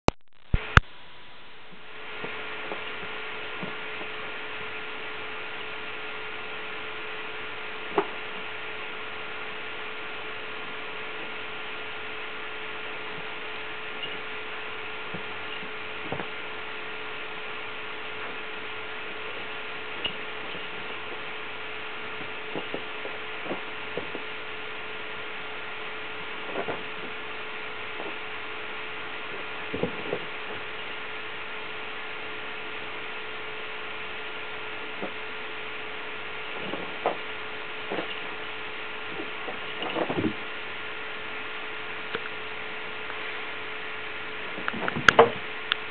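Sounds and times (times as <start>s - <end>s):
electrical hum and hiss: 0.4s - 45.9s
cats scuffling on sofa: 14.0s - 31.2s, 34.3s - 40.6s.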